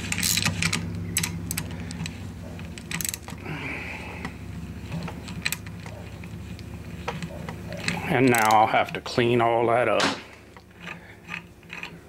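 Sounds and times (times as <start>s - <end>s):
ratchet handle clicking: 0.0s - 3.4s, 7.1s - 9.0s, 10.5s - 12.0s
low hum: 0.0s - 8.1s.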